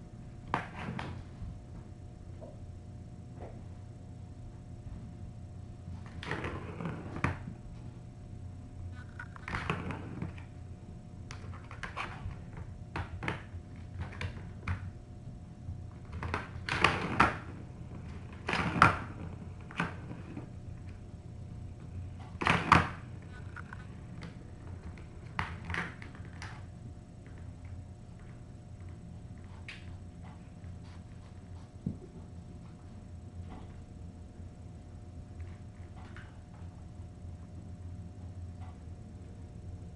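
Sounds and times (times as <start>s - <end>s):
faint steady hum: 0.0s - 39.9s.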